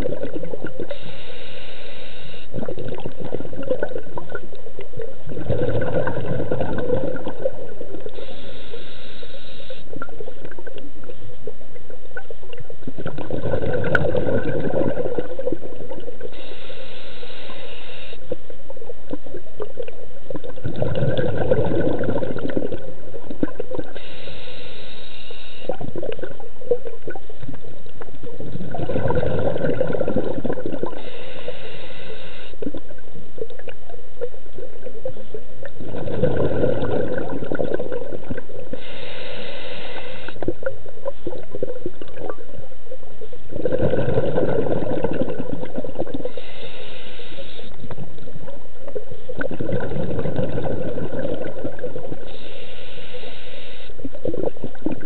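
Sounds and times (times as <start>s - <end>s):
bubbling on exhale: 0.0s - 42.6s, 43.4s - 55.0s
regulator hiss on inhale: 0.2s - 3.3s, 6.7s - 11.4s, 13.6s - 18.9s, 23.7s - 26.4s, 29.5s - 33.0s, 38.6s - 41.6s, 45.9s - 49.4s, 52.0s - 55.0s.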